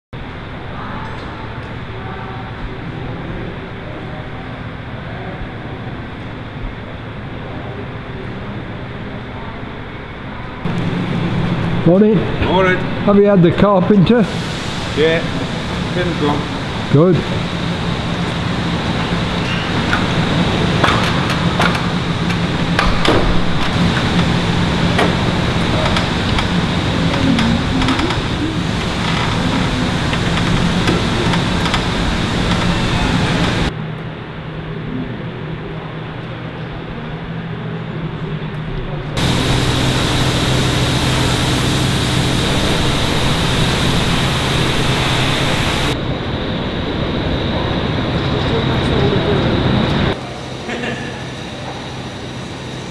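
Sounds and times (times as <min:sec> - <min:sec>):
low mechanical hum: 0:00.2 - 0:52.9
steady rushing noise: 0:10.6 - 0:33.8, 0:39.2 - 0:50.6.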